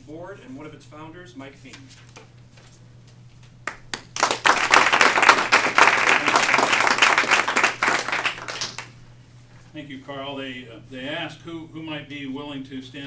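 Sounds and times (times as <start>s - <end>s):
single claps: 3.6s - 8.9s
audience applauding: 3.7s - 8.9s.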